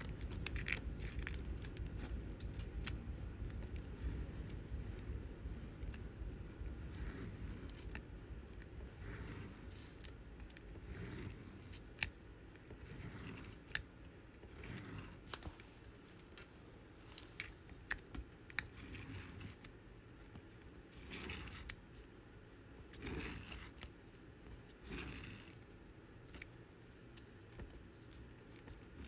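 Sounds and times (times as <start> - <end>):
soft rustling: 0.0 - 22.2.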